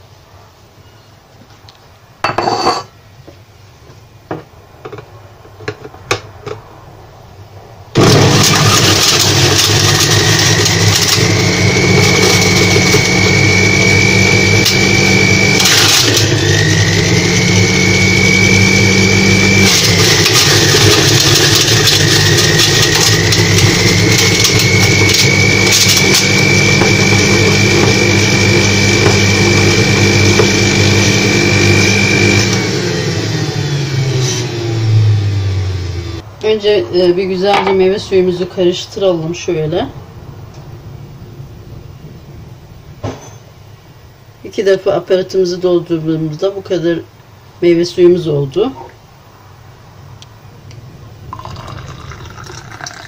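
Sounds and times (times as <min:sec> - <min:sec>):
juicer motor whining: 0:08.0 - 0:36.2, 0:51.3 - 0:53.0.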